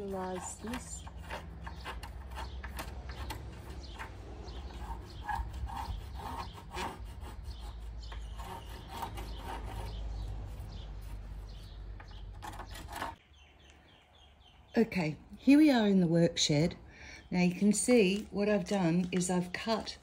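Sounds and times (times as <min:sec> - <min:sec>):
hand tool rasping wood: 0:00.0 - 0:13.2.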